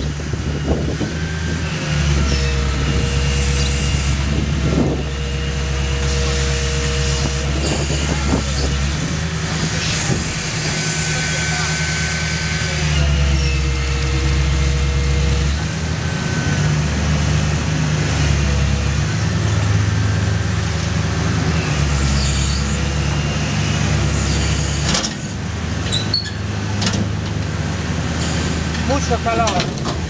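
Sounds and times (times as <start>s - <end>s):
excavator diesel engine and hydraulics: 0.0s - 30.0s
metal squeal: 2.1s - 4.2s, 6.0s - 8.8s, 9.8s - 13.8s, 21.6s - 23.0s, 25.9s - 26.4s.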